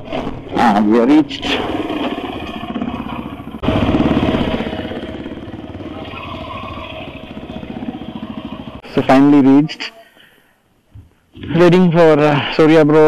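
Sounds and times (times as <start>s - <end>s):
motorcycle engine revving: 0.0s - 9.4s.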